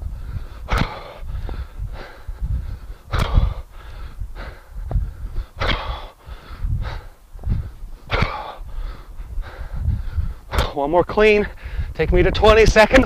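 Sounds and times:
low rumble: 0:00.0 - 0:10.6
man exhaling forcefully: 0:00.4 - 0:02.2, 0:03.1 - 0:04.6, 0:05.4 - 0:09.1.

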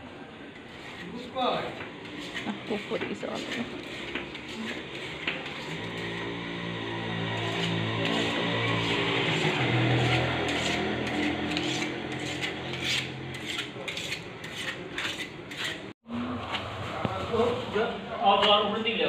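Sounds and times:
knife scraping on sharpener: 0:00.6 - 0:06.5, 0:07.2 - 0:15.9.

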